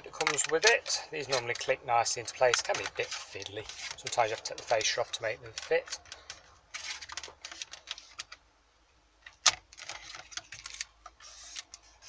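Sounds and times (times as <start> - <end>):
plastic trim clicks and rattles: 0.1 - 6.4.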